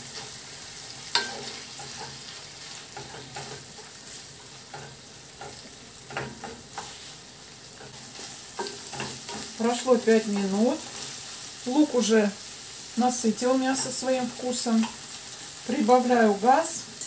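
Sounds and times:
meat and onion sizzling in pan: 0.0s - 17.0s
wooden spatula scraping pan: 1.1s - 7.2s.

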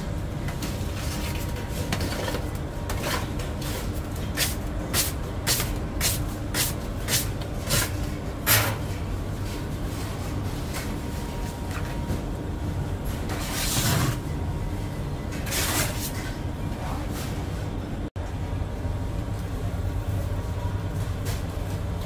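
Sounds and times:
low machine rumble: 6.8s - 22.0s.

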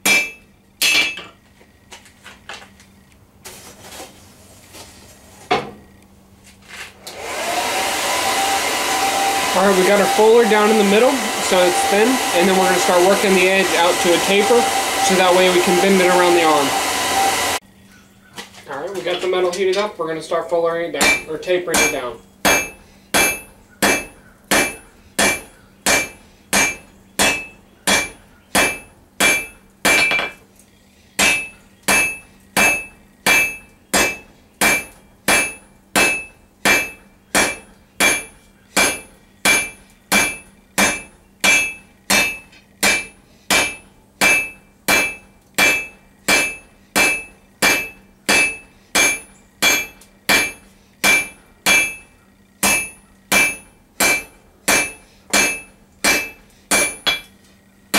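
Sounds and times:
hammer striking steel on anvil: 0.0s - 1.3s, 21.0s - 30.4s, 31.2s - 57.4s.

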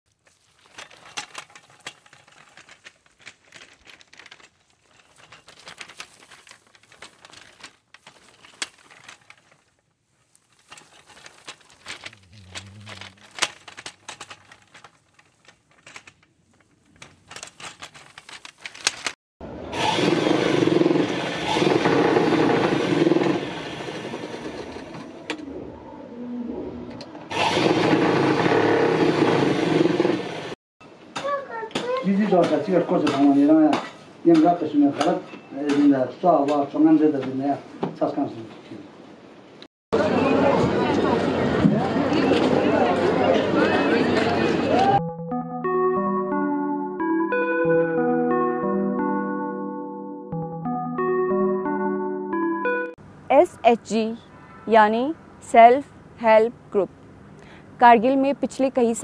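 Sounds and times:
wool scratching and clicking: 0.1s - 19.2s.

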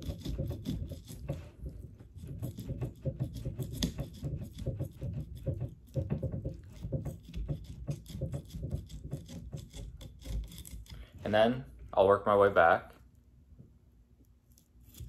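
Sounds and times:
knife scraping through fish skin: 0.0s - 11.1s, 14.5s - 15.0s.

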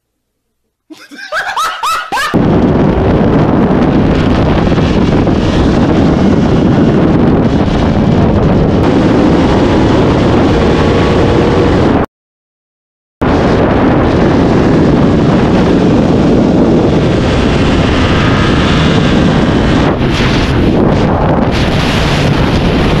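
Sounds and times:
voices and laughter: 0.9s - 2.4s
wind rushing over microphone: 1.2s - 12.1s, 13.2s - 23.0s
motorcycle engine accelerating: 2.4s - 12.0s, 13.3s - 23.0s.

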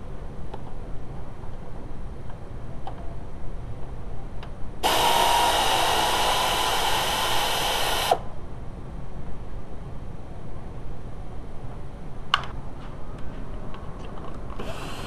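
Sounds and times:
power tool motor running: 4.8s - 8.2s.

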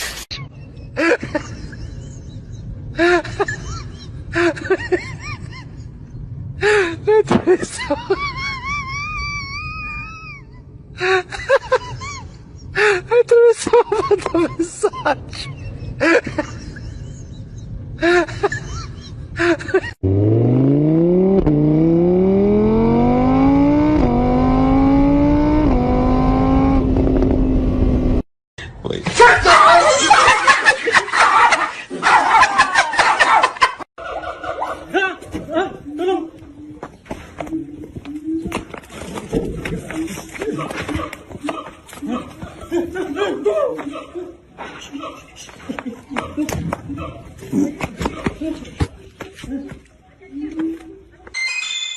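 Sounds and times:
motorbike engine accelerating: 20.0s - 28.2s.

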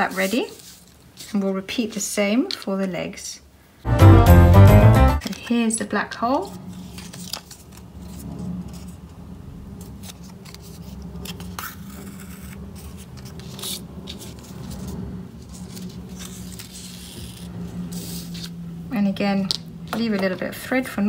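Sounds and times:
cardstock rustling and scraping: 0.0s - 3.0s, 5.2s - 9.2s, 9.8s - 18.6s
low steady hum: 3.9s - 21.0s.

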